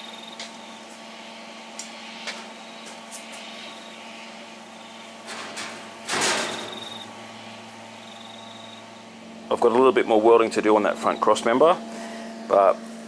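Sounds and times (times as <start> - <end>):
low shop hum: 0.0 - 13.0
steel scrape or rattle: 5.2 - 7.0.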